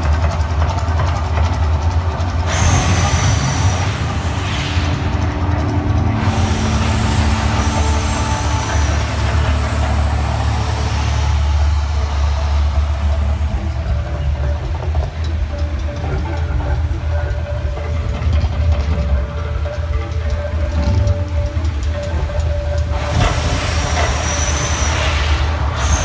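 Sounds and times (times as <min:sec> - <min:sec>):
deep rumble: 0:00.0 - 0:26.0
fire bursts hissing and whooshing: 0:02.5 - 0:05.4.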